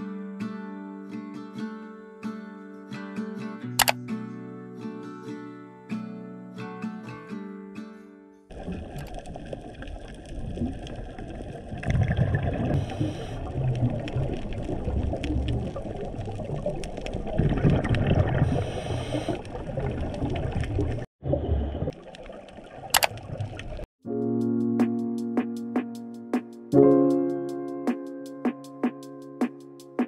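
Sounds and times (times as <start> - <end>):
muffled gurgling water: 8.5 - 23.8
scattered clicks: 23.0 - 23.2.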